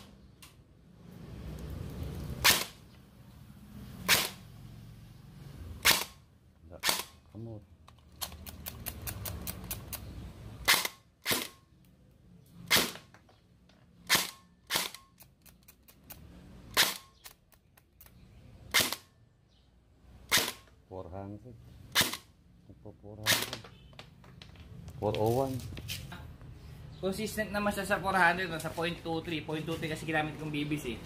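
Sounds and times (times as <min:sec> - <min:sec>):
airsoft rifle shots: 0:02.4 - 0:02.8, 0:04.0 - 0:04.4, 0:05.8 - 0:06.2, 0:06.8 - 0:07.2, 0:10.6 - 0:11.6, 0:12.7 - 0:13.1, 0:14.0 - 0:15.1, 0:16.7 - 0:17.3, 0:18.7 - 0:19.1, 0:20.3 - 0:20.7, 0:21.9 - 0:22.3, 0:23.2 - 0:23.6.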